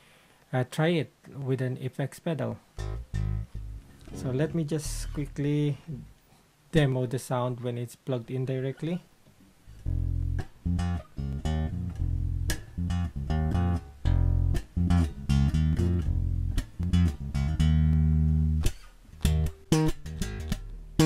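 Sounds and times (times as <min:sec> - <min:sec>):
electric bass plucked notes: 0:02.8 - 0:06.2, 0:09.7 - 0:21.0.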